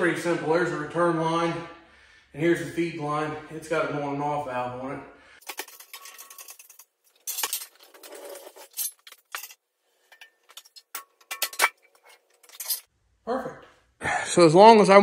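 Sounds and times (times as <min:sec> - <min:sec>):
metal chain clinking and rattling: 0:05.4 - 0:12.9.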